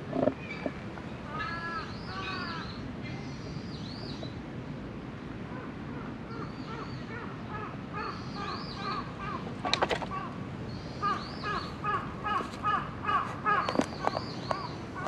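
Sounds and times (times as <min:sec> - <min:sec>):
crows cawing: 0:01.3 - 0:02.7, 0:11.0 - 0:13.9.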